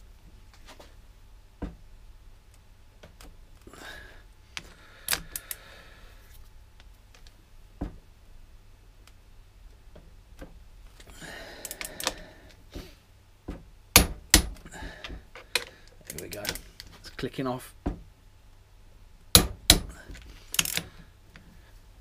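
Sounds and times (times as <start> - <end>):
torque wrench clicks: 20.5 - 20.8
wrench ratcheting rattles: 20.5 - 20.8.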